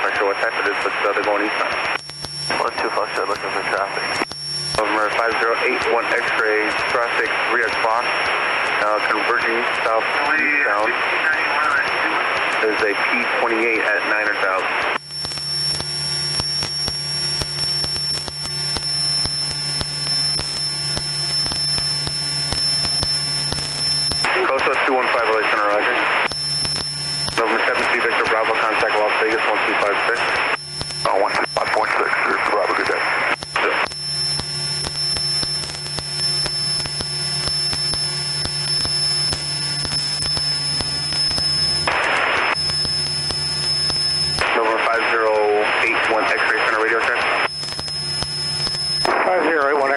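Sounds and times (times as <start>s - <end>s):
static crackles: 0.0s - 49.9s
thin high whine: 0.0s - 49.9s
faint clicks: 1.8s - 2.5s
low hum: 26.1s - 44.4s.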